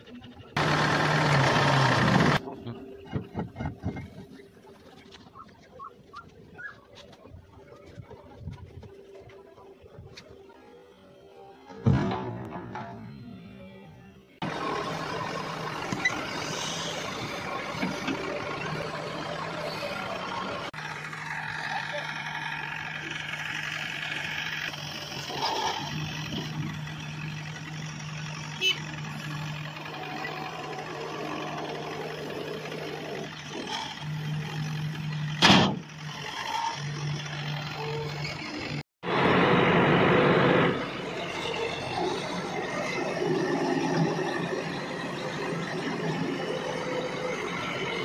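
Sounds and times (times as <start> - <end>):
diesel engine running: 0.0 - 48.0.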